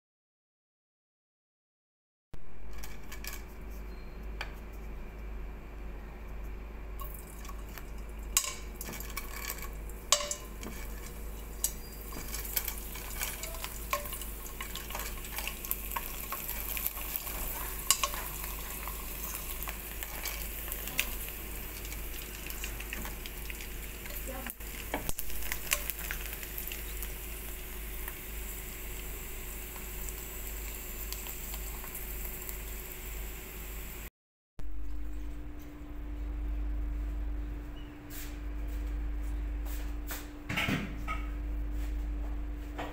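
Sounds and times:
oil sizzling and crackling: 0:07.0 - 0:34.1.

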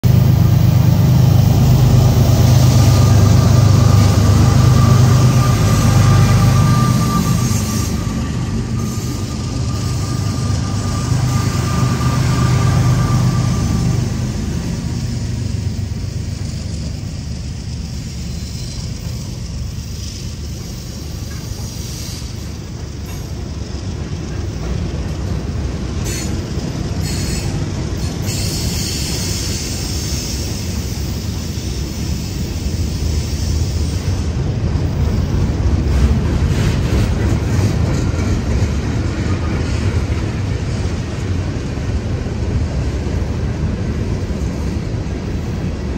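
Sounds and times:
freight locomotives passing: 0:00.0 - 0:45.9
thin steady whine: 0:00.1 - 0:24.8.

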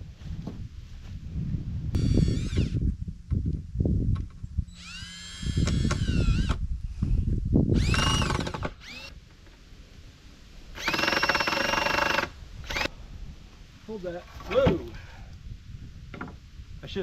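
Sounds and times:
cordless drill motor whine: 0:02.0 - 0:02.8, 0:04.7 - 0:06.6, 0:07.7 - 0:09.1, 0:10.8 - 0:12.9.

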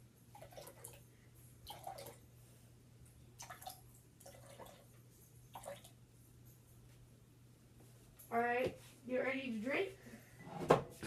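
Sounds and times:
drink pouring into cup: 0:00.4 - 0:01.0, 0:01.7 - 0:02.2.

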